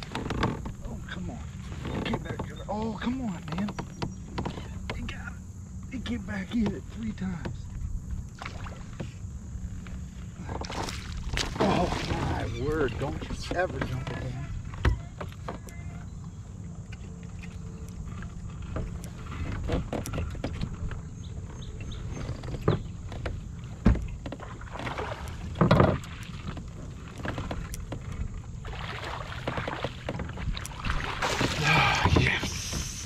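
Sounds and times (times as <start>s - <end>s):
low rumble of water and wind: 0.0s - 33.0s
fish splashing: 10.6s - 12.6s, 24.5s - 26.4s, 28.6s - 33.0s
knocks and clicks on kayak: 16.9s - 28.4s.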